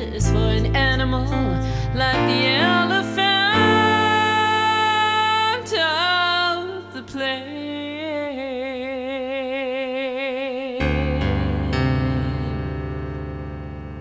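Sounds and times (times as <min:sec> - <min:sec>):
low bass notes: 0:00.0 - 0:03.7
person singing with vibrato: 0:00.0 - 0:14.0.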